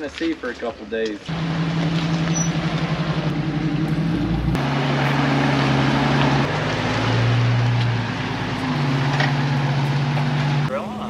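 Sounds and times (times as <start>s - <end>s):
water splashing from tyres: 0.0s - 10.7s
off-road vehicle engines: 0.0s - 11.0s.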